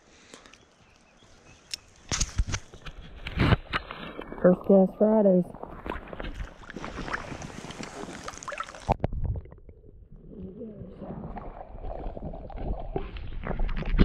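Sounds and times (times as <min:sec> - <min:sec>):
creek water sloshing and gurgling: 0:03.7 - 0:09.5, 0:10.2 - 0:14.0.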